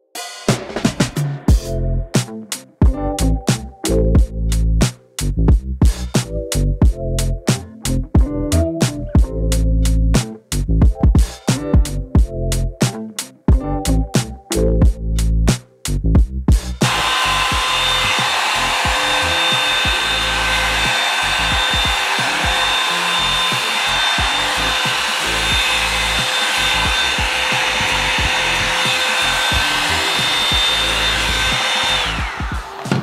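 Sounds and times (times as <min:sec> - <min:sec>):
hair dryer brush running: 0:16.8 - 0:33.0.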